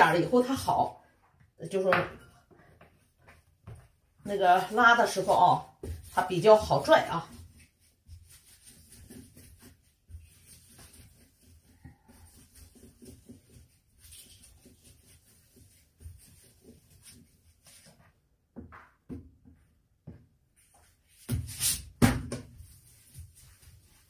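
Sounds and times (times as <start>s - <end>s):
dough rubbing on wooden board: 4.7s - 18.0s.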